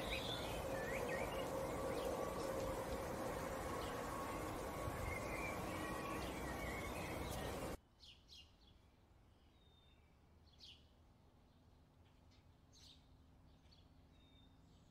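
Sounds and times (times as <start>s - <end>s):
bird chirps: 0.0s - 10.9s
outdoor background noise: 0.0s - 14.9s.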